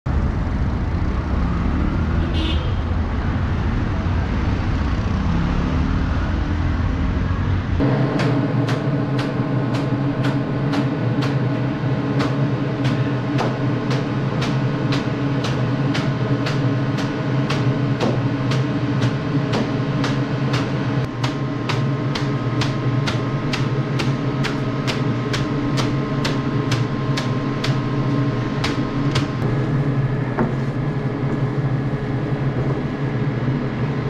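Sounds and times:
street traffic: 0:00.1 - 0:34.0
steady hum: 0:02.4 - 0:34.0
cleavers chopping on wood: 0:08.2 - 0:11.4, 0:12.2 - 0:27.9, 0:28.5 - 0:29.4.

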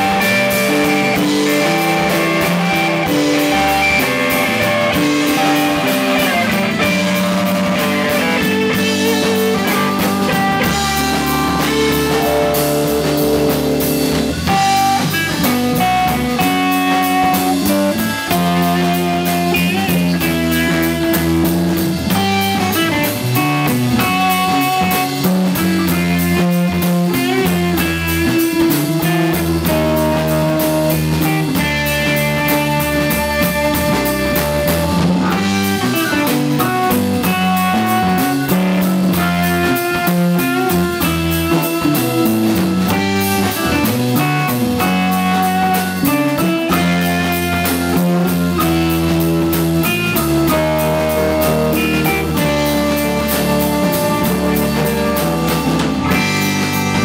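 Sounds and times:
drum kit: 0:00.0 - 0:57.0
electric bass: 0:00.0 - 0:57.0
electric guitar: 0:00.0 - 0:57.0
keyboard: 0:00.0 - 0:57.0.

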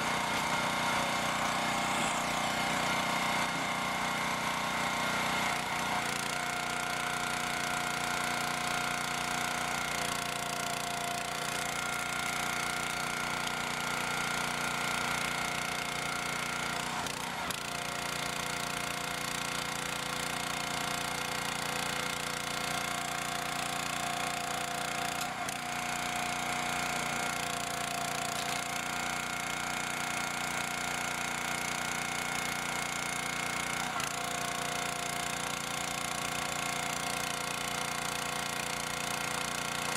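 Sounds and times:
petrol engine running: 0:00.0 - 0:10.4
hydraulic pump whine: 0:00.0 - 0:39.9.

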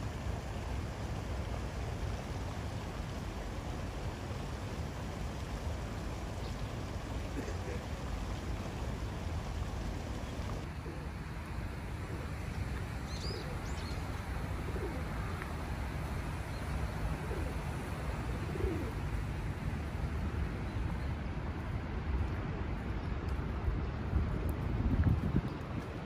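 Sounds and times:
pigeons cooing: 0:13.2 - 0:15.9, 0:16.7 - 0:19.2.

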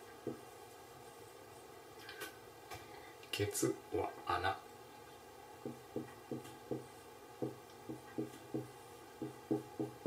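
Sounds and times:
marker writing on whiteboard: 0:00.2 - 0:01.2, 0:05.6 - 0:10.0.

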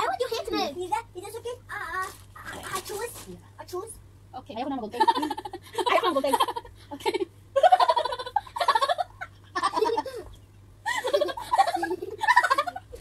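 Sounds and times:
women laughing and giggling: 0:05.0 - 0:13.0.

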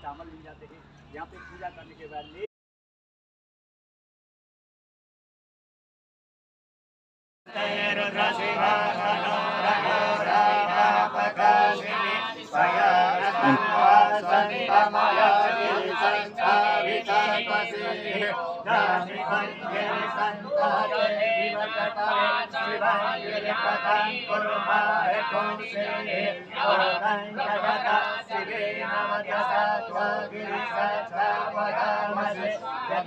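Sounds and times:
man chanting: 0:07.6 - 0:18.2.

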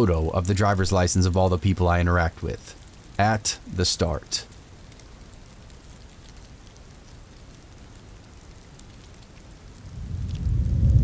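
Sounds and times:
steady rain: 0:00.0 - 0:11.0
low rumble of thunder: 0:09.8 - 0:11.0.

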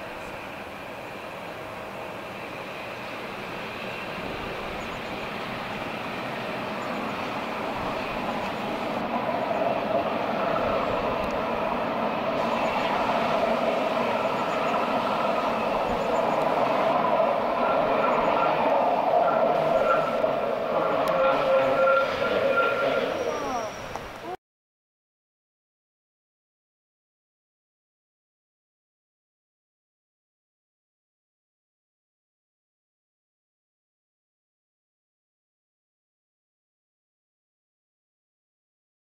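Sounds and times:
electric train rumbling: 0:00.0 - 0:24.4.

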